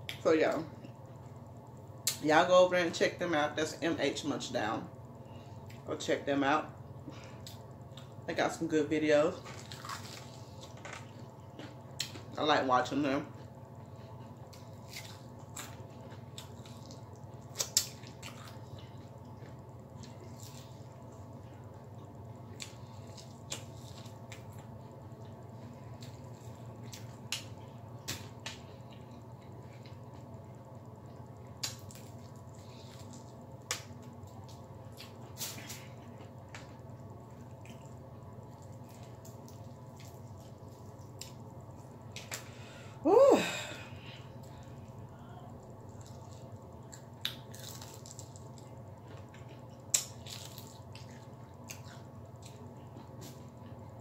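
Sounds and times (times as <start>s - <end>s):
steady low hum: 0.0s - 54.0s
breading crackles: 9.2s - 12.4s, 45.0s - 53.8s
chewing and crunching food: 9.3s - 12.4s, 13.2s - 42.6s, 44.3s - 54.0s
fried chicken crunching: 9.4s - 10.8s, 14.2s - 20.9s, 45.8s - 53.7s.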